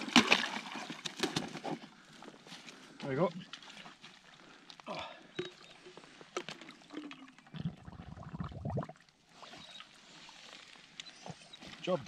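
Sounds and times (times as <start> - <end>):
water splashing: 0.0 - 1.7
water gurgling into bottle: 5.4 - 9.2.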